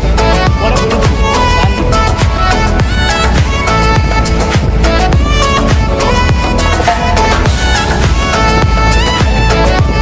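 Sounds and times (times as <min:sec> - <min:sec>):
music with steady beat: 0:00.0 - 0:10.0.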